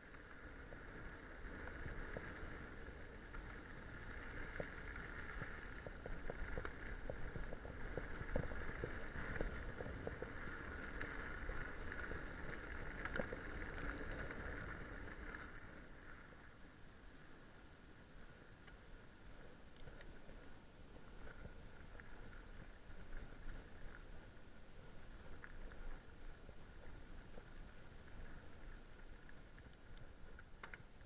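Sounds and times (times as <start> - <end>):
bike tyres crunching on gravel: 0.0 - 16.6.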